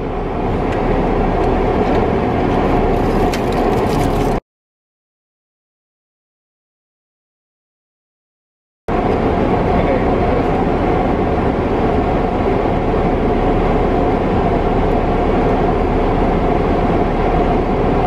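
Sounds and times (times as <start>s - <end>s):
car cabin rumble: 0.0s - 4.4s.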